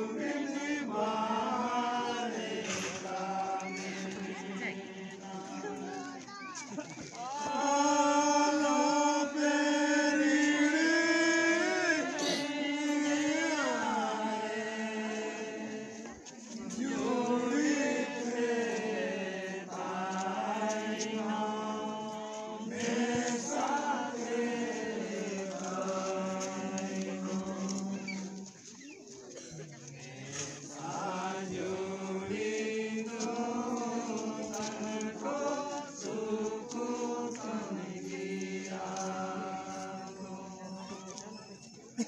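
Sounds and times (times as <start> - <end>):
voices singing a chant: 0.0 - 42.0.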